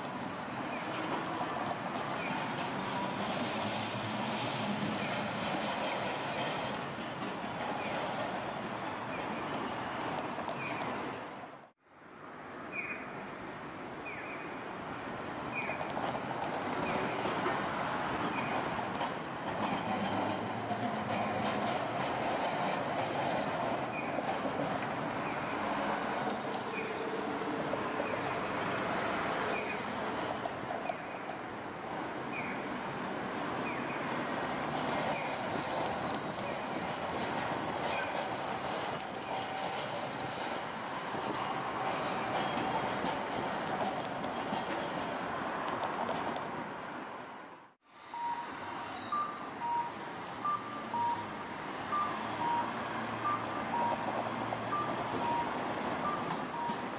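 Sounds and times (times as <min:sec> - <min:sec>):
passing cars: 0:00.0 - 0:56.9
streetcars rolling: 0:00.0 - 0:56.9
short electronic beeps: 0:48.2 - 0:56.9.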